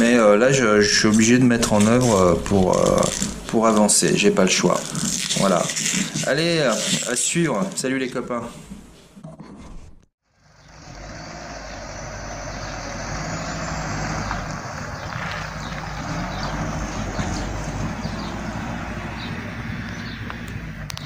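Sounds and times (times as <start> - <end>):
truck engine pulling away: 10.2 - 21.0.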